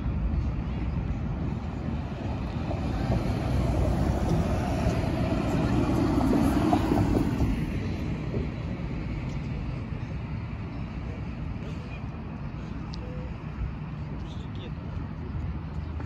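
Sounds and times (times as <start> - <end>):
vehicle passing by: 1.9 - 8.6.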